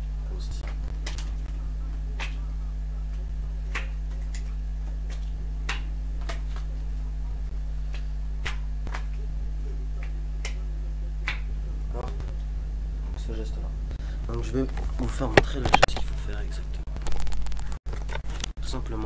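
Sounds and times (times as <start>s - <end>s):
low electrical hum: 0.0s - 19.0s
playing cards snapping: 0.6s - 1.6s, 2.2s - 2.4s, 3.1s - 6.8s, 7.9s - 9.2s, 11.2s - 11.5s.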